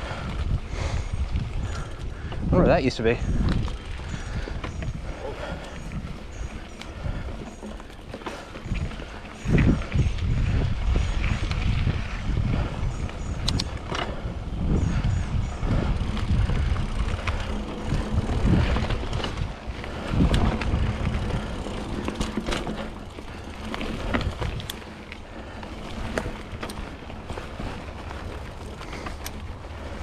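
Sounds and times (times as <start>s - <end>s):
bike clicking and rattling: 0.0s - 30.0s
bike tyres rumbling on dirt: 0.0s - 30.0s.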